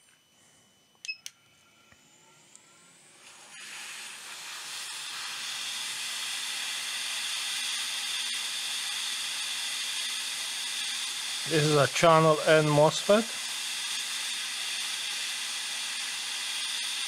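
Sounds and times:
hot air blower hiss: 3.2 - 17.0.

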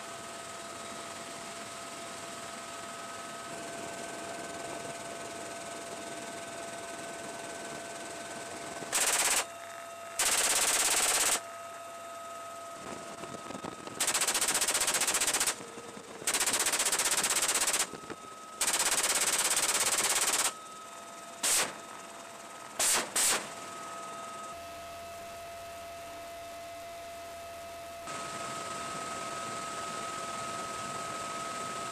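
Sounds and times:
helicopter hum: 0.3 - 24.9
machine gun automatic fire: 8.9 - 9.5, 10.2 - 11.4, 14.0 - 15.6, 16.2 - 17.9, 18.6 - 20.6, 21.4 - 21.8, 22.8 - 23.5.

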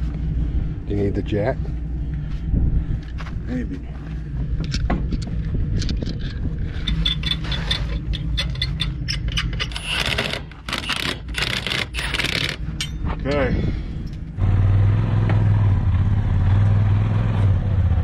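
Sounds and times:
metallic clinks of nuts and tools: 5.8 - 13.4.

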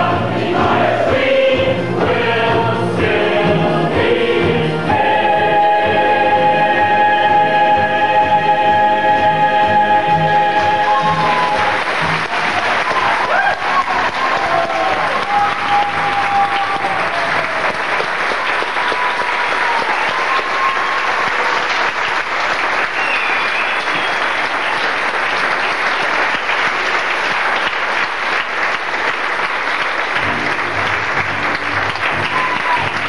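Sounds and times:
band playing: 0.0 - 13.3
audience applauding: 10.5 - 33.0.

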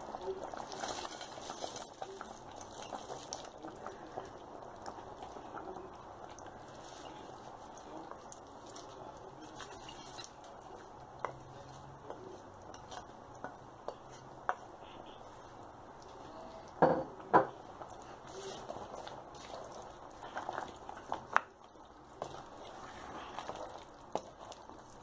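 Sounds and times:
curry simmering in pot: 0.0 - 25.0.

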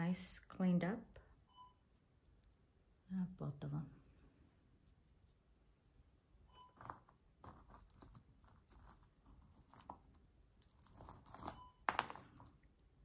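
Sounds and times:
metal jewelry pieces clinking: 6.5 - 12.6.

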